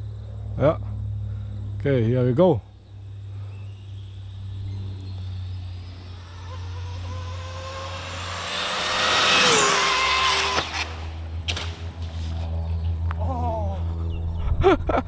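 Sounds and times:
electric toy car motor whine: 3.8s - 11.5s.

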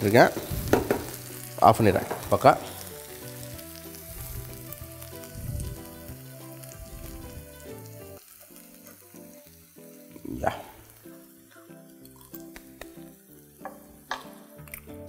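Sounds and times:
food sizzling in a pan: 0.0s - 15.0s
quiet background music: 0.0s - 15.0s.

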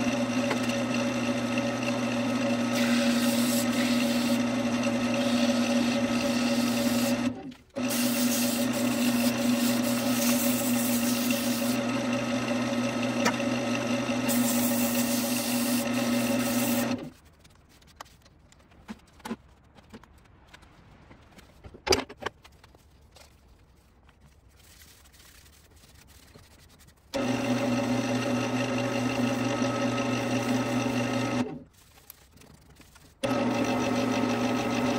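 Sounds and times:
wood lathe motor humming: 0.0s - 17.1s, 27.1s - 31.6s, 33.2s - 34.9s
sandpaper on spinning wood: 2.6s - 4.5s, 5.2s - 7.3s, 7.9s - 11.8s, 14.3s - 17.2s, 24.6s - 27.1s.

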